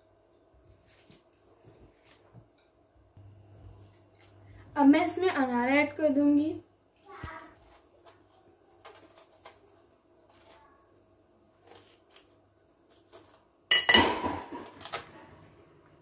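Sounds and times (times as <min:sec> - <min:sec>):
fruit pulled apart crackling: 0:07.5 - 0:10.6, 0:11.6 - 0:13.5
knife cutting fruit rind: 0:07.5 - 0:10.7, 0:11.6 - 0:13.5.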